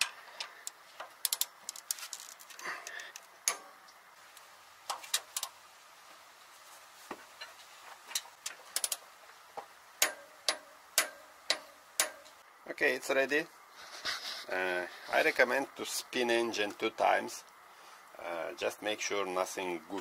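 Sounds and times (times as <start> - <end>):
ratchet wrench clicks: 0.6 - 1.8, 8.8 - 9.0.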